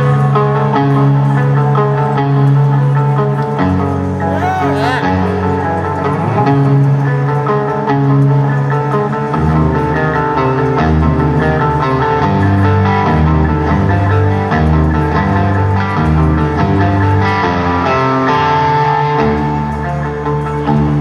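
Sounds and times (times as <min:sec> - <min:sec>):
guitar lines: 0:02.2 - 0:08.6
rock band playing slowly: 0:04.3 - 0:21.0.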